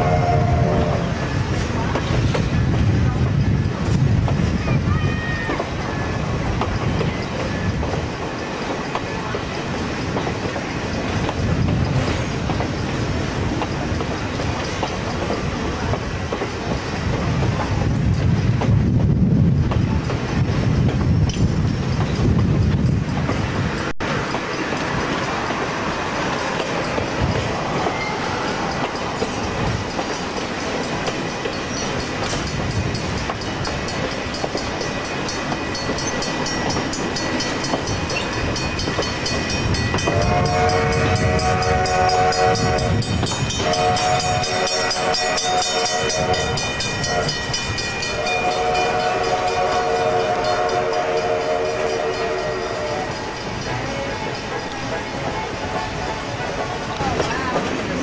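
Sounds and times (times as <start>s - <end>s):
locomotive horn blasts: 0.0s - 1.2s, 40.0s - 53.2s
train wheels rumbling on rails: 0.0s - 58.0s.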